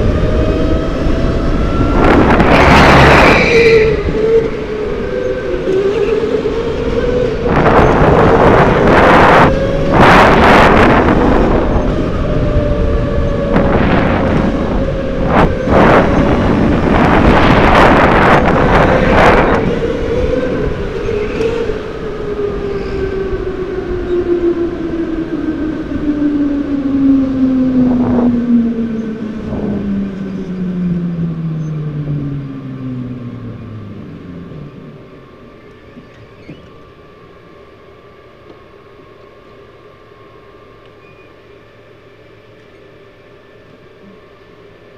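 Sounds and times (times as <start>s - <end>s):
go-kart motor whine: 0.0s - 44.9s
loud bursts of rushing noise: 1.5s - 4.2s.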